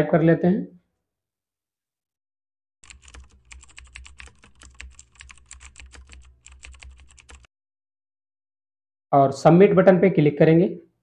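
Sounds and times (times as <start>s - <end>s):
rapid keyboard typing: 2.8s - 7.5s.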